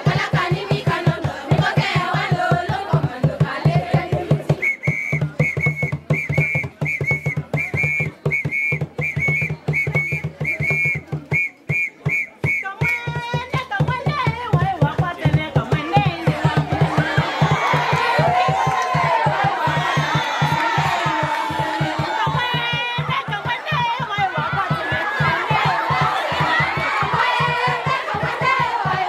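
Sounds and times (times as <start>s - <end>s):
group singing: 0.0s - 4.6s, 15.6s - 29.0s
dance music with drumbeat: 0.0s - 29.0s
whistle short rhythmic blasts: 4.5s - 13.4s.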